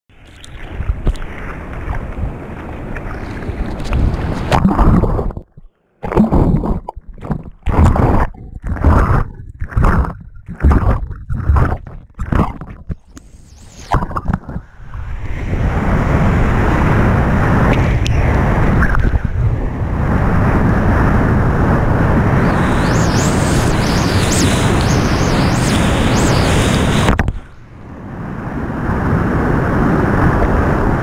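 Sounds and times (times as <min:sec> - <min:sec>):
rhythmic paddling splashes: 0:00.1 - 0:14.6, 0:22.5 - 0:27.7
water rushing and splashing: 0:00.1 - 0:20.1, 0:22.4 - 0:29.2.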